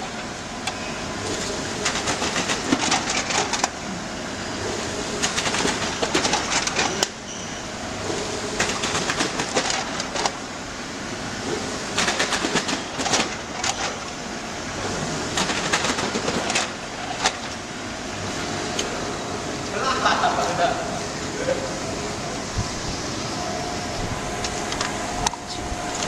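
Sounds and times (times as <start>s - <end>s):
machine running: 0.0s - 26.0s
rapid clattering clicks: 1.8s - 3.8s, 5.2s - 7.1s, 8.6s - 10.4s, 11.5s - 14.2s, 15.3s - 17.6s.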